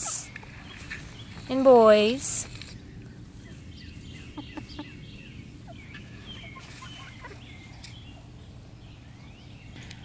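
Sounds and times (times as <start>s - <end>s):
hens clucking softly: 4.2s - 8.3s.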